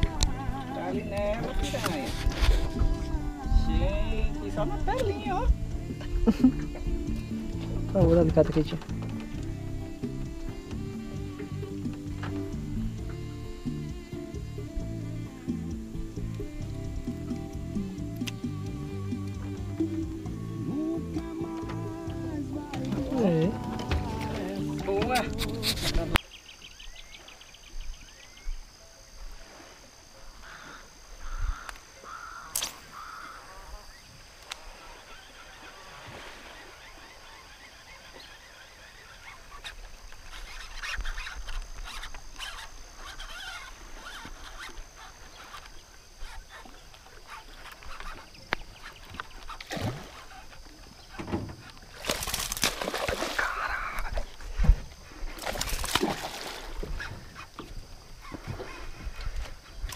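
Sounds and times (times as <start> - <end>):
birds chirping: 0.0 - 28.8, 30.2 - 54.4
fish splashing in water: 51.6 - 54.3, 55.4 - 57.5.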